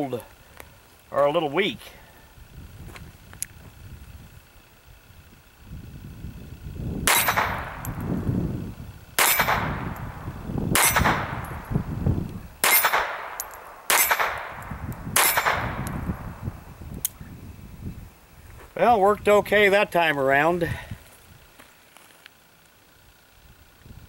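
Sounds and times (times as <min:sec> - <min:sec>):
pistol shots: 0:07.0 - 0:08.2, 0:09.2 - 0:11.7, 0:12.6 - 0:16.3
steel targets ringing: 0:07.1 - 0:08.1, 0:09.2 - 0:10.2, 0:12.6 - 0:15.8.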